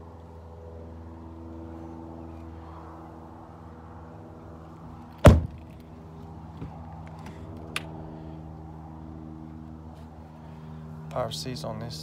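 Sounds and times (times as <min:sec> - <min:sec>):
steady low hum: 0:00.0 - 0:12.0
car door shutting: 0:05.2 - 0:05.7.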